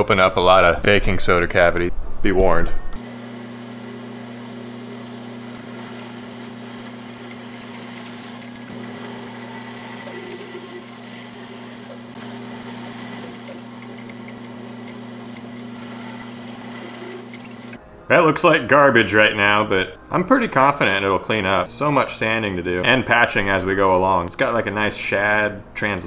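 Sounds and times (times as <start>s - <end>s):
band saw cutting: 3.0s - 17.8s.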